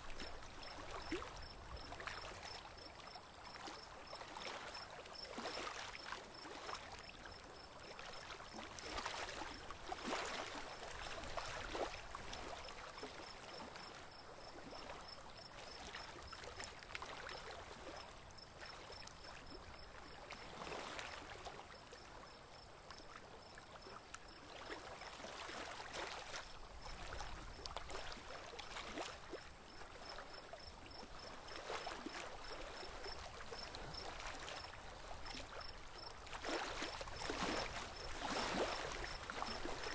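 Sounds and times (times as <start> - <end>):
water splashing along boat hull: 3.5 - 14.0, 22.9 - 39.9.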